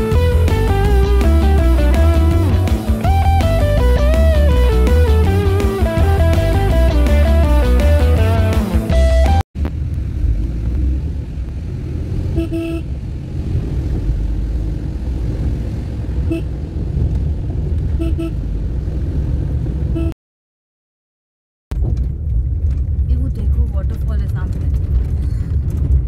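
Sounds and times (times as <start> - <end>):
car engine and tyre rumble: 0.0 - 8.9, 9.6 - 20.1, 21.7 - 26.0
car horn toots: 12.3 - 12.9, 16.2 - 16.5, 18.0 - 18.4, 19.9 - 20.2.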